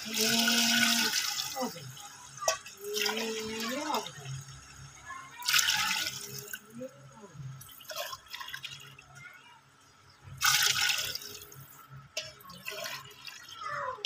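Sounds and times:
water pouring into pot: 0:00.0 - 0:06.8, 0:07.5 - 0:09.2, 0:10.3 - 0:14.0
water splashing into liquid: 0:10.4 - 0:11.6.

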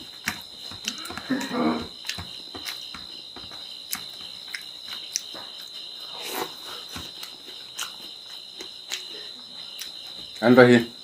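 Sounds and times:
chewing smacks: 0:03.9 - 0:10.0.

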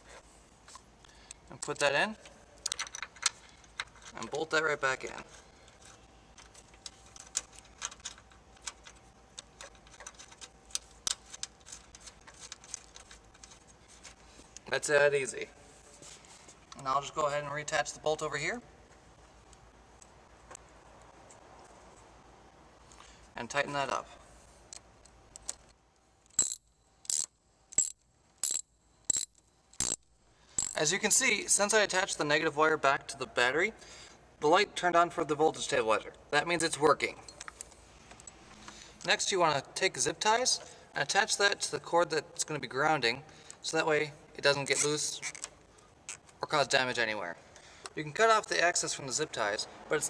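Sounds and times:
small metallic clicks: 0:00.7 - 0:04.2, 0:24.7 - 0:30.8
socket ratchet clicking: 0:26.3 - 0:30.8.

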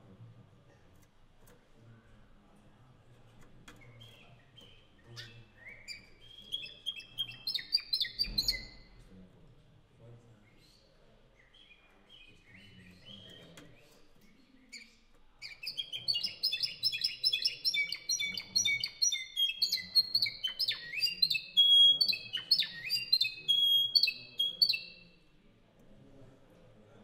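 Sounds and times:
canary singing: 0:03.8 - 0:08.9, 0:14.6 - 0:25.1.

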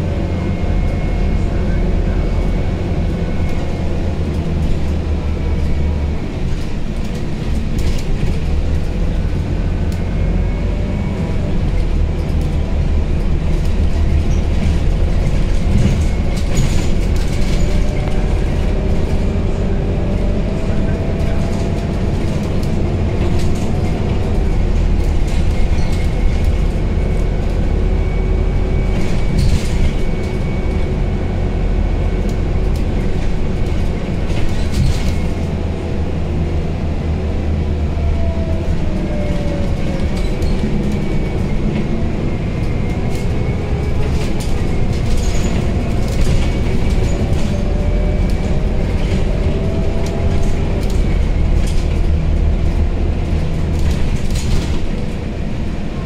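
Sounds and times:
bus engine rumble: 0:00.0 - 0:56.0.

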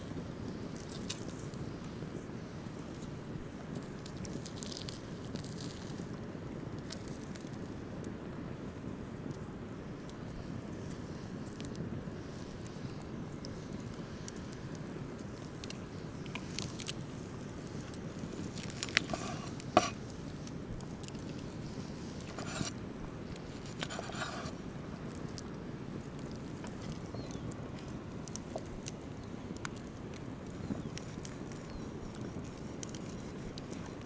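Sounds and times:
low background noise: 0:00.0 - 0:34.0
knife slicing meat: 0:18.9 - 0:20.0, 0:23.6 - 0:24.6.

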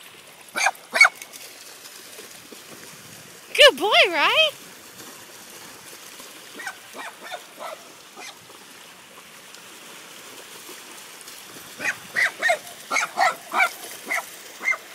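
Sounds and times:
dog yipping: 0:00.6 - 0:01.2, 0:06.6 - 0:08.4, 0:11.8 - 0:14.9.

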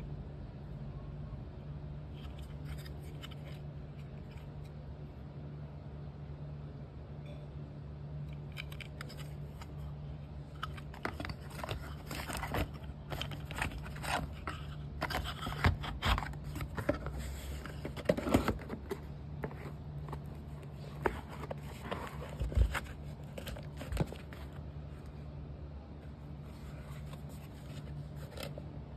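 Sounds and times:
steady low hum: 0:00.0 - 0:28.9
plastic wrap rustling: 0:10.5 - 0:24.6.

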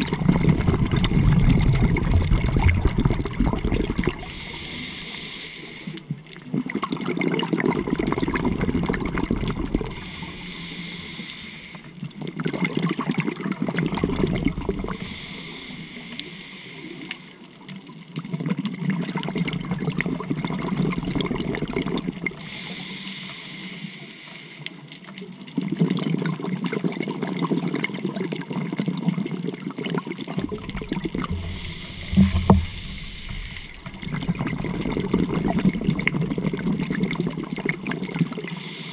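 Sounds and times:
bubbling exhale: 0:00.0 - 0:12.0, 0:13.6 - 0:17.1, 0:19.4 - 0:24.6, 0:30.3 - 0:38.9
regulator hissing inhale: 0:04.2 - 0:06.1, 0:09.9 - 0:12.0, 0:14.9 - 0:17.4, 0:22.4 - 0:24.8, 0:30.6 - 0:34.8, 0:38.5 - 0:38.9.

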